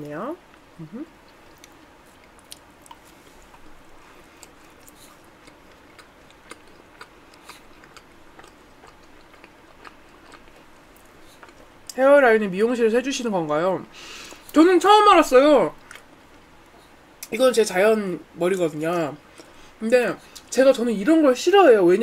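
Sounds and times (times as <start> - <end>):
soft mouth clicks and smacks: 1.2 - 3.8
chewing macaron: 1.2 - 12.0.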